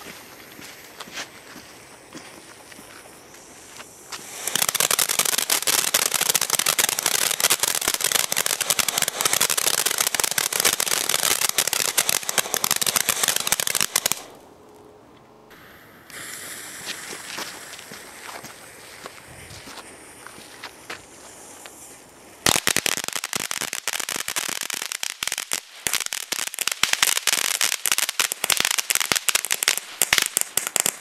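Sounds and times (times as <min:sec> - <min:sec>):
firework crackling and hissing: 0:00.0 - 0:14.4, 0:15.5 - 0:31.0
sputtering hiss of sparks: 0:02.7 - 0:14.3, 0:15.5 - 0:26.0.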